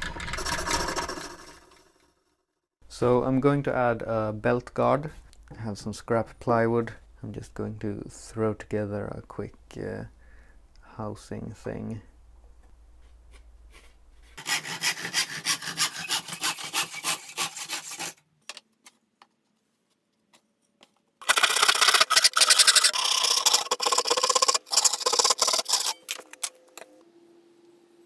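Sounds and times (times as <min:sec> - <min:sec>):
hand saw cutting wood: 0:14.4 - 0:18.2, 0:21.2 - 0:26.1.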